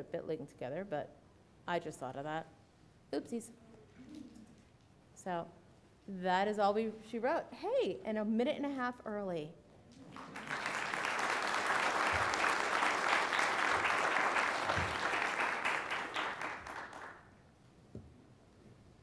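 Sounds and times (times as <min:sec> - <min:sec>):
audience applauding: 0:10.0 - 0:17.2.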